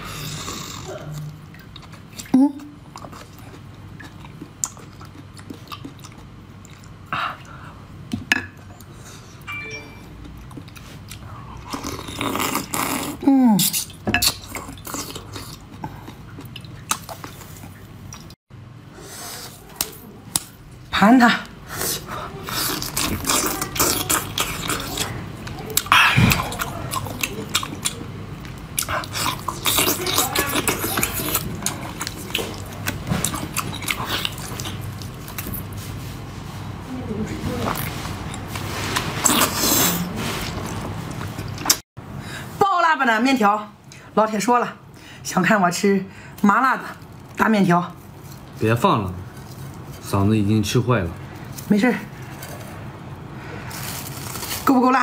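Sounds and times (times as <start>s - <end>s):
wet chewing and slurping: 10.3s - 18.4s, 21.8s - 36.1s, 37.7s - 41.8s.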